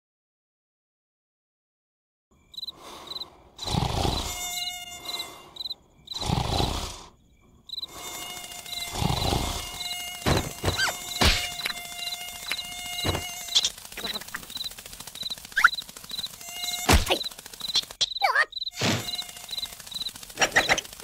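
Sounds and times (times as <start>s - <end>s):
crickets chirping: 2.3s - 21.0s
cartoon mosquito whining: 3.1s - 7.2s, 7.8s - 21.0s
sharp ticks: 7.8s - 21.0s.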